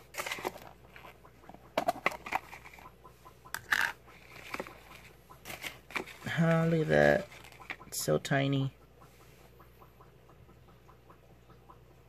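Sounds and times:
paper rustles and crinkles: 0:00.0 - 0:01.2, 0:04.2 - 0:07.8
plastic clicks: 0:03.5 - 0:06.3.

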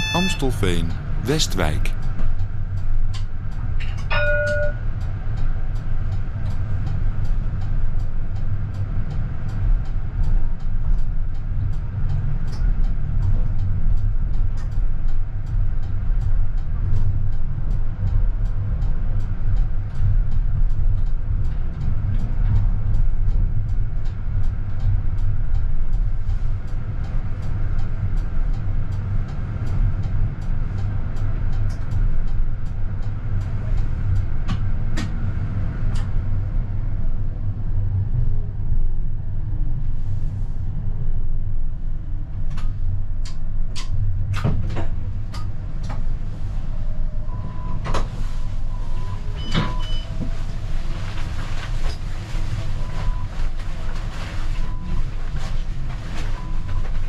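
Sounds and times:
brief tones: 0:00.0 - 0:01.8
tram rumble: 0:00.0 - 0:57.0.

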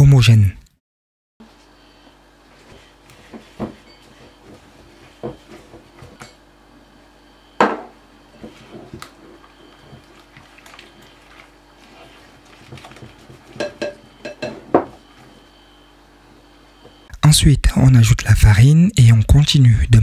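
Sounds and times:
bowl knocking and clinking: 0:07.6 - 0:08.0, 0:13.5 - 0:15.0
hand mixing in glass bowl: 0:08.4 - 0:15.5.

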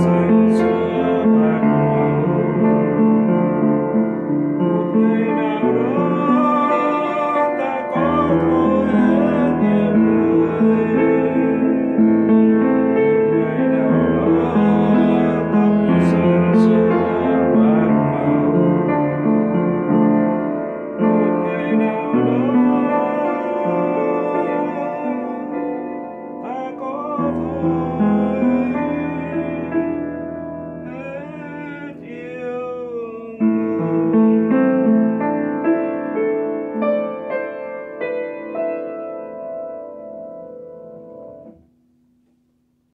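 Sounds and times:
piano playing chords and melody: 0:00.0 - 0:42.9.

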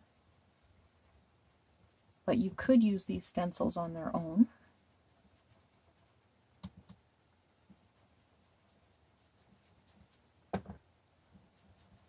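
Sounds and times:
stencil brush rubbing on card: 0:00.7 - 0:06.3, 0:07.6 - 0:10.3, 0:11.3 - 0:12.0.

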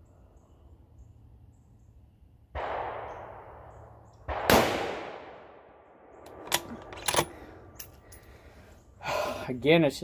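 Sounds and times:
rifle shots: 0:02.6 - 0:05.7.

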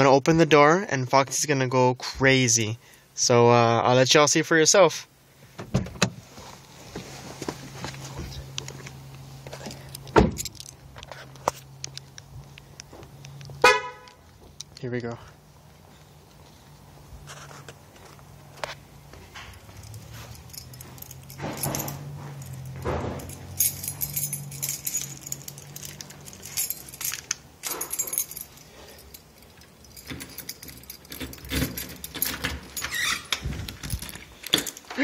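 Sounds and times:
keys jangling: 0:09.5 - 0:12.1, 0:19.3 - 0:35.0
key turning in door lock: 0:19.6 - 0:35.0
door knob and deadbolt rattling: 0:29.4 - 0:35.0.

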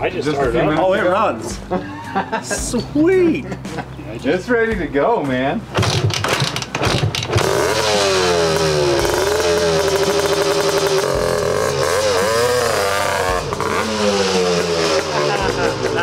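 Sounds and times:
two-stroke engine revving: 0:05.7 - 0:16.0.

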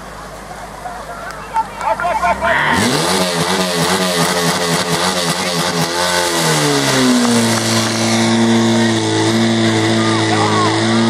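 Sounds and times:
pump engine running hard: 0:02.6 - 0:11.0.

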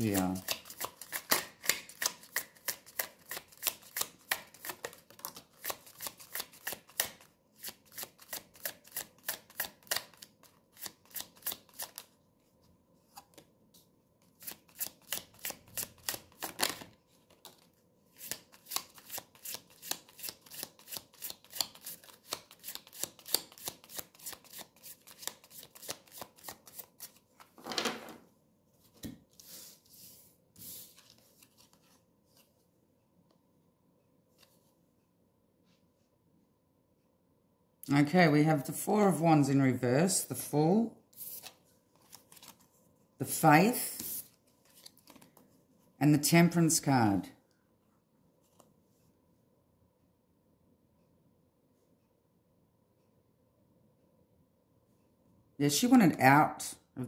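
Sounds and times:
cards being shuffled: 0:00.0 - 0:12.2, 0:14.2 - 0:27.9, 0:30.6 - 0:32.5, 0:41.2 - 0:42.7, 0:43.9 - 0:45.5.

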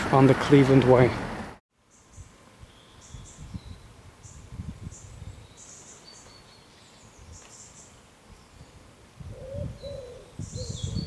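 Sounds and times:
small birds chirping: 0:01.8 - 0:11.0
wind rumbling on microphone: 0:02.1 - 0:05.7, 0:08.2 - 0:11.0.

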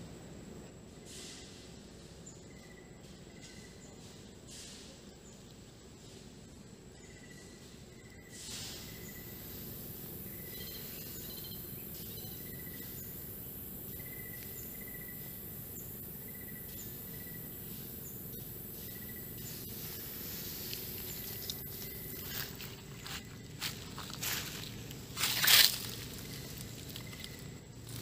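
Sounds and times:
low background rumble: 0:05.1 - 0:28.0
high-pitched insect drone: 0:07.0 - 0:28.0.

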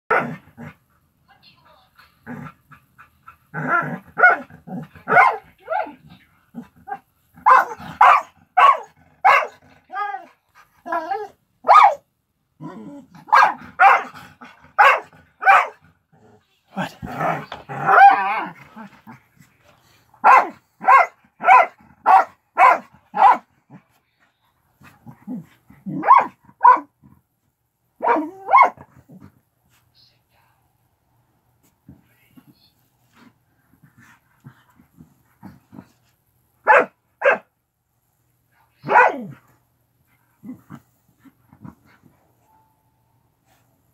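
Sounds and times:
dog barking: 0:04.2 - 0:06.0, 0:07.4 - 0:09.6, 0:11.6 - 0:12.0, 0:13.2 - 0:15.8, 0:20.2 - 0:23.5, 0:25.9 - 0:26.9, 0:28.0 - 0:28.9, 0:36.6 - 0:37.5, 0:38.8 - 0:39.4.

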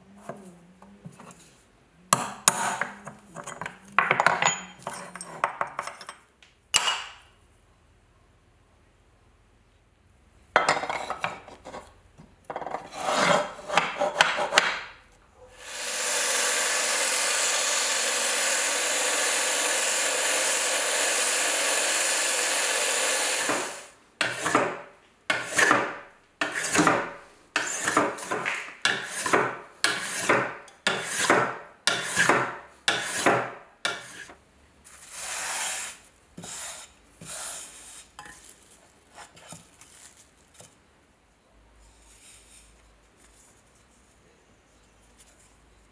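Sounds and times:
hand plane shaving wood: 0:12.9 - 0:14.6, 0:15.6 - 0:24.7, 0:25.3 - 0:27.0, 0:27.6 - 0:34.3
bench power tool cutting wood: 0:15.5 - 0:27.0.

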